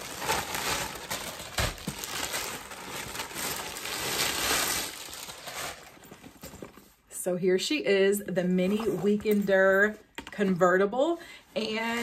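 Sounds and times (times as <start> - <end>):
plastic packaging rustling: 0.0 - 7.0.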